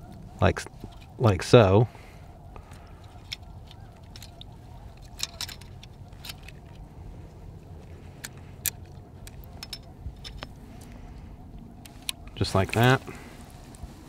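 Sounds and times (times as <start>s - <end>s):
low steady rumble: 0.0s - 14.0s
faint metal clicks: 2.6s - 11.2s.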